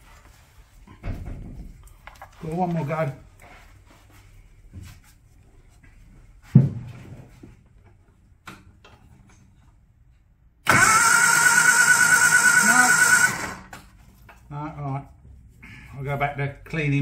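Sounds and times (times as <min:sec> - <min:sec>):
thump: 0:06.4 - 0:07.2
starter motor cranking engine: 0:10.6 - 0:13.8.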